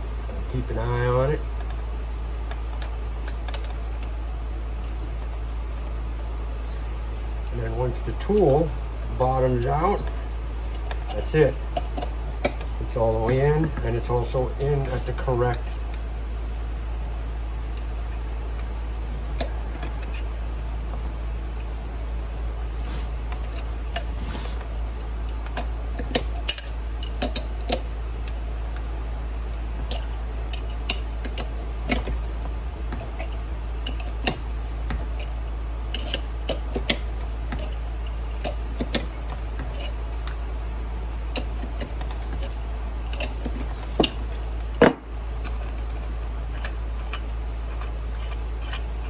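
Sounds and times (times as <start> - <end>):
steady low hum: 0.0 - 49.0
metal tools clicking: 26.0 - 28.4, 35.2 - 37.0.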